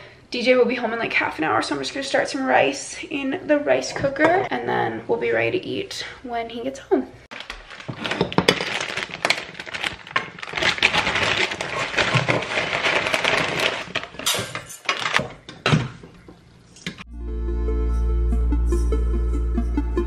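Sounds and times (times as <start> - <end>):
plastic bag crinkling: 7.3 - 15.4.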